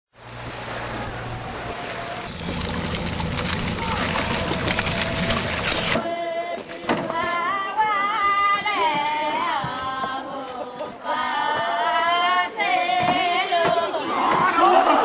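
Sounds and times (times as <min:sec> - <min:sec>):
person singing chant-like melody: 0:03.7 - 0:15.0.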